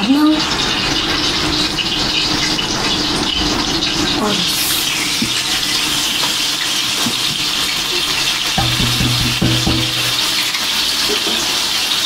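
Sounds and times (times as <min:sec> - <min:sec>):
pot simmering with bubbling hiss: 0:00.0 - 0:12.0.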